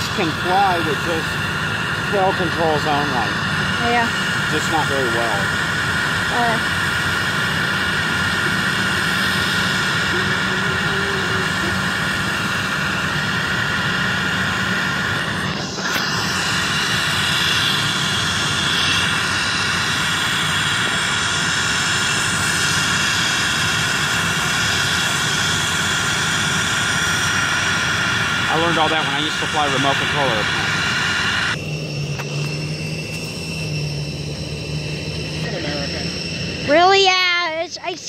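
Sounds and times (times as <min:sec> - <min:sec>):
jet engine hiss and whine: 0:00.0 - 0:38.0.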